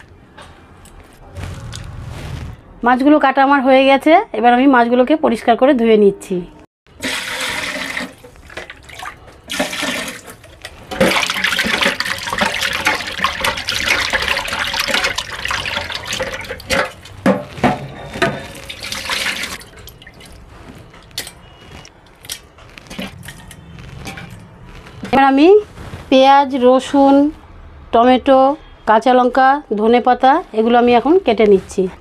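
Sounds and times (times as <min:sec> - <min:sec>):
running water splashing over fish: 0:11.1 - 0:17.2, 0:18.4 - 0:20.4.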